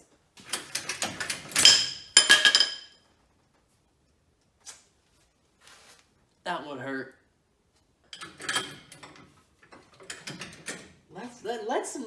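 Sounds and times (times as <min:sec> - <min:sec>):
metal jack stands clanking: 0:00.4 - 0:02.8, 0:08.1 - 0:11.0.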